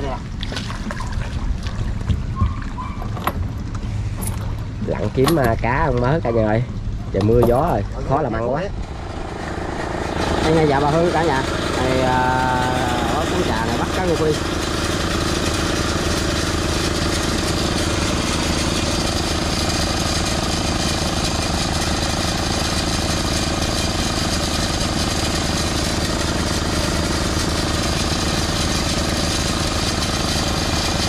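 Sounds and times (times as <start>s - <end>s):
small engine chugging: 8.9s - 31.0s.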